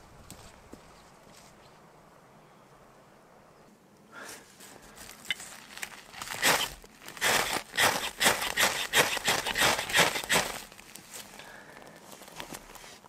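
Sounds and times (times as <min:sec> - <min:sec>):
quick rustles: 0:04.4 - 0:11.4.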